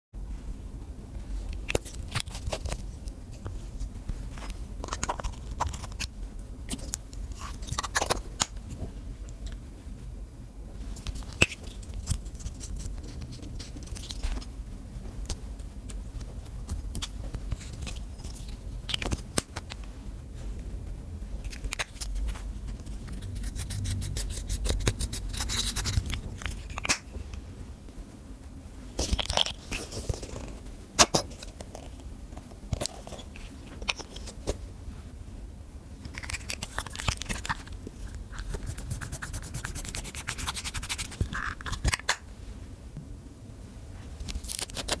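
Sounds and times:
scraping and crunching makeup: 0:01.5 - 0:08.8, 0:11.0 - 0:14.5, 0:15.2 - 0:19.9, 0:21.4 - 0:27.1, 0:29.0 - 0:32.0, 0:32.6 - 0:34.6, 0:36.0 - 0:42.3, 0:44.2 - 0:45.0.

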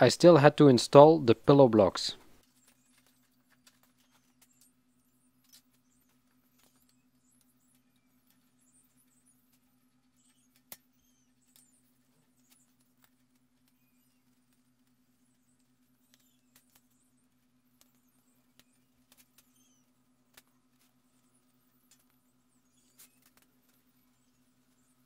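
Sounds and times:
faint low hum: 0:00.0 - 0:25.0.

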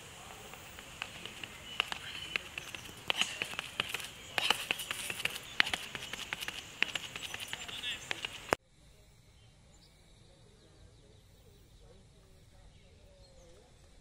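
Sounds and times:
running footsteps on track: 0:00.0 - 0:08.6.

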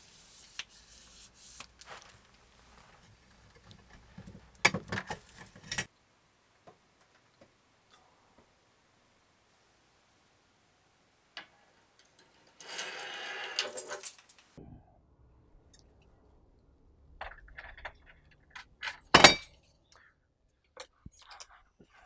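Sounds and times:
keys jangling: 0:12.9 - 0:14.4
sharp metallic clack: 0:18.9 - 0:19.6
clicks and rattles at letterbox: 0:20.7 - 0:22.0.

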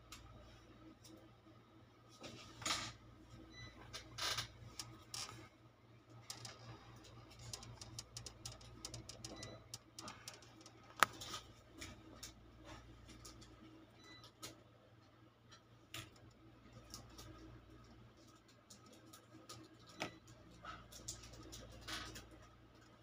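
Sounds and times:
steady low hum: 0:00.0 - 0:14.1
light clicks and ticks: 0:06.2 - 0:12.4.

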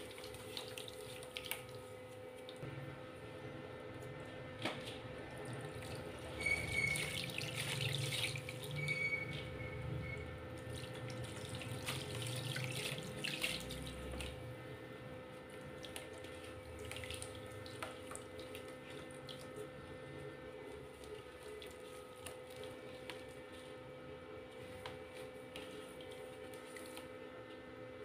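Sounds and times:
water splashes and drips: 0:00.0 - 0:02.6, 0:04.8 - 0:09.5, 0:10.6 - 0:14.4, 0:15.8 - 0:19.7.

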